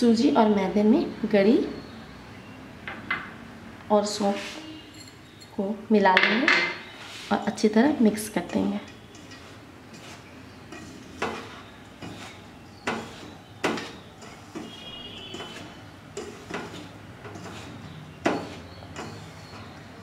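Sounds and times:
hand rubbing dough mixture: 0:07.0 - 0:20.0
dough scraping and knocking on bowl: 0:08.5 - 0:19.6.

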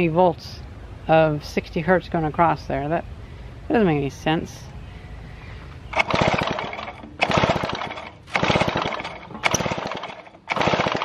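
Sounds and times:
chainsaw engine cranking without starting: 0:05.9 - 0:11.0.

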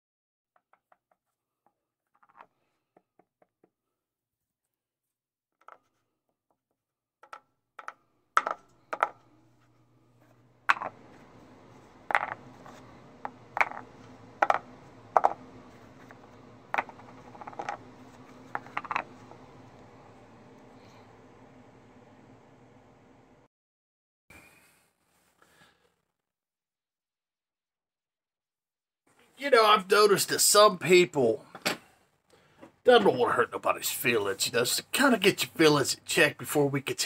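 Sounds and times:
steady low hum: 0:08.6 - 0:23.5
cork coasters clicking on wood: 0:13.2 - 0:15.4.

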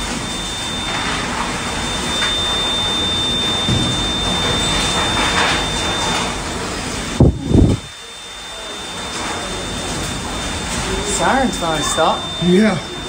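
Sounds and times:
roaring storm wind: 0:00.0 - 0:08.0
thin steady high tone: 0:00.0 - 0:13.0.

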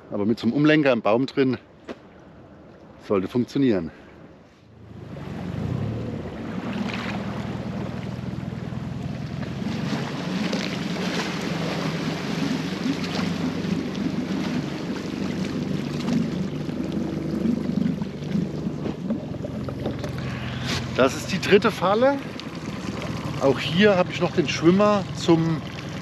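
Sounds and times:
water noise: 0:01.6 - 0:26.0
boat motor humming: 0:04.3 - 0:26.0.

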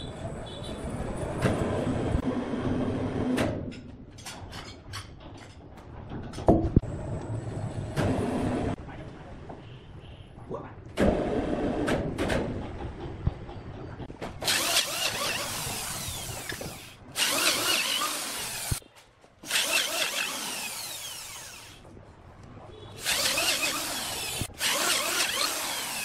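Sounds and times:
electric drill boring into log: 0:14.4 - 0:18.8, 0:19.5 - 0:21.8, 0:23.0 - 0:26.0.

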